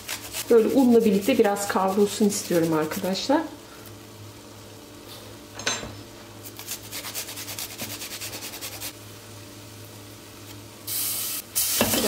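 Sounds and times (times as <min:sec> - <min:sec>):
garlic rasping on grater: 0:00.0 - 0:03.1, 0:06.6 - 0:08.9.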